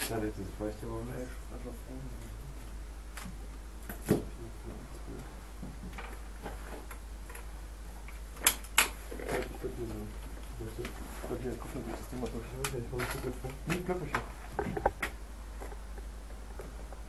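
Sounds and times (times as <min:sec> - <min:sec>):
low steady hum: 0:00.0 - 0:17.0
sharp clicks and light knocks: 0:05.6 - 0:09.0, 0:12.1 - 0:17.0.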